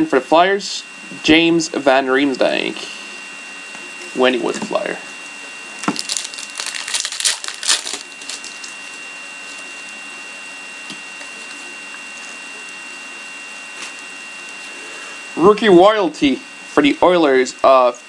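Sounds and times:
faint high whine: 0.0 - 18.0
card wrappers rustling: 5.8 - 10.0.

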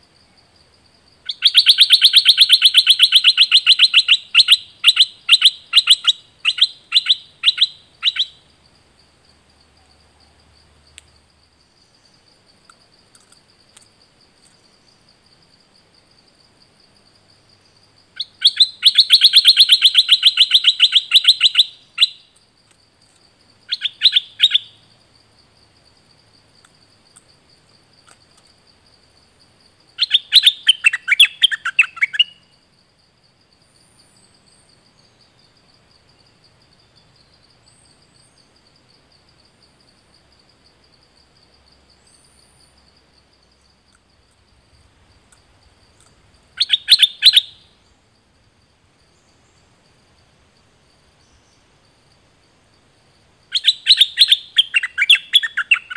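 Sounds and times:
bird singing rapid notes: 1.3 - 8.5, 18.2 - 22.3, 23.6 - 24.8, 30.0 - 32.5, 46.6 - 47.7, 53.5 - 55.9.

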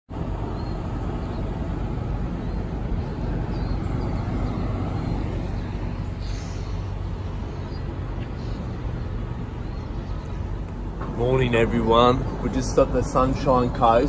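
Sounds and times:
diesel engine idling: 0.2 - 14.0
brief hiss: 6.2 - 6.9.

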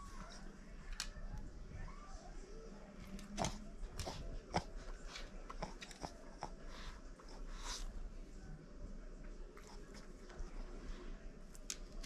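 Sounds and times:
dog mouthing plush toy: 3.0 - 7.9.

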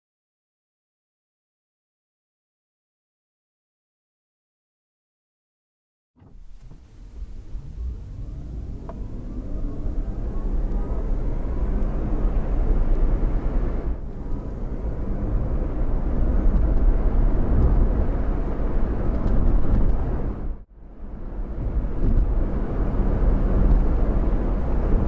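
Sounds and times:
truck engine accelerating: 6.2 - 25.0.

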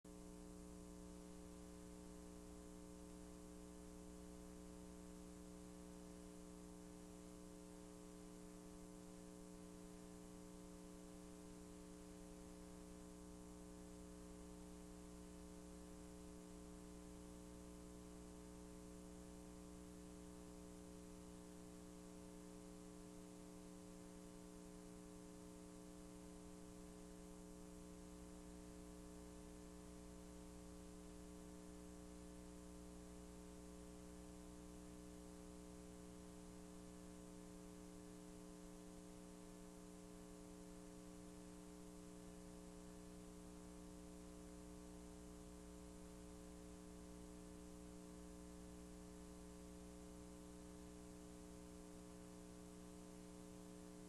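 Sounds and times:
faint electrical hum with hiss: 0.1 - 54.0.

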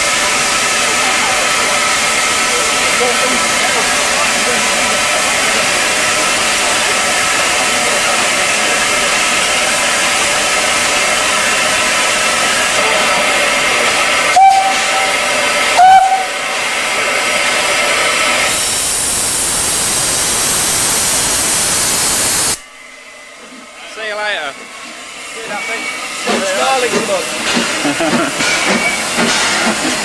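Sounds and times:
steam hissing: 0.0 - 30.0
steam whistle toots: 14.3 - 16.4.

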